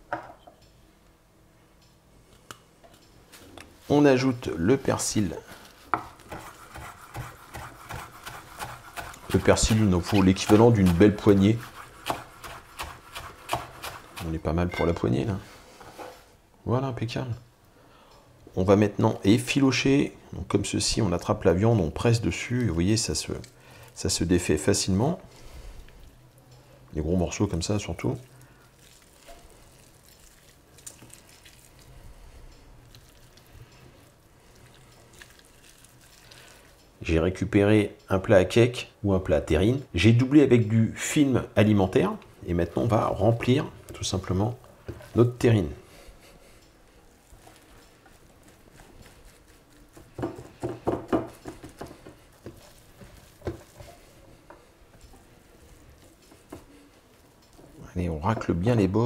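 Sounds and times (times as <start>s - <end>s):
wet squishing of meat: 27.8s - 36.8s, 46.9s - 50.2s, 51.3s - 57.8s
hands patting meat: 47.4s - 54.6s, 56.0s - 56.8s.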